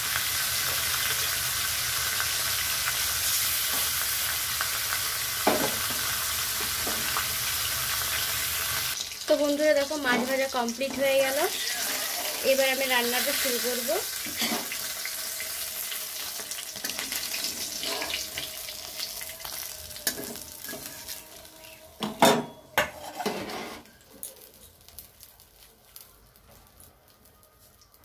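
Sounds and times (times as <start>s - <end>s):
hot oil sizzling in a wok: 0.0s - 28.0s
spatula scraping a pan: 10.9s - 12.7s, 14.2s - 14.8s, 16.2s - 18.5s, 22.8s - 24.0s
utensils clanking: 22.0s - 24.0s.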